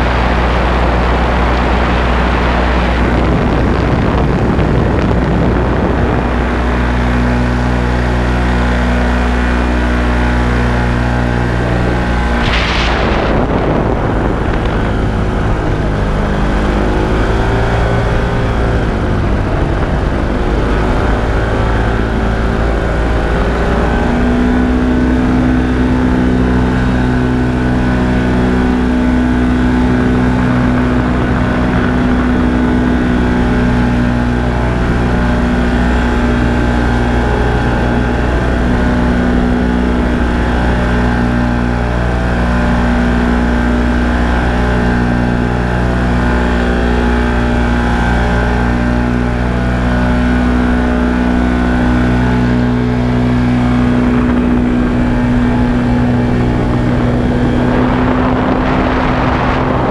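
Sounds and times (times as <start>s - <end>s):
paramotor engine and propeller: 0.0s - 59.9s
brief whoosh: 12.2s - 15.9s.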